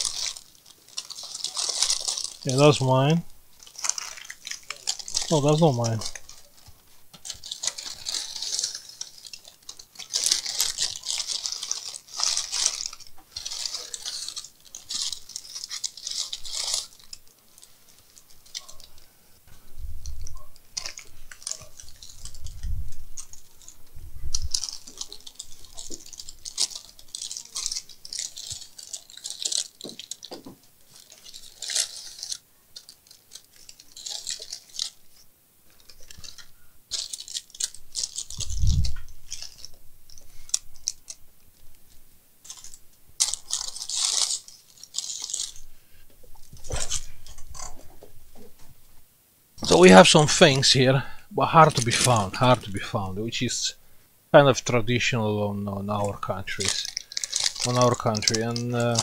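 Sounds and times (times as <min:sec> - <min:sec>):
scratching and rustling handling: 0:00.0 - 0:53.8, 0:54.4 - 0:59.0.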